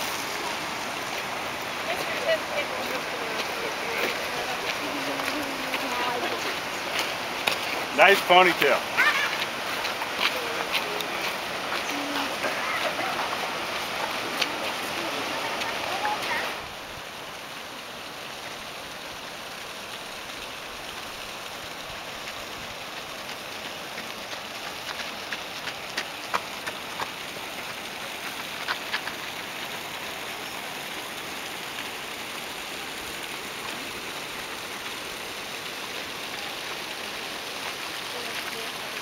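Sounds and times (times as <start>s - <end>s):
river water rushing over rocks: 0.0s - 39.0s.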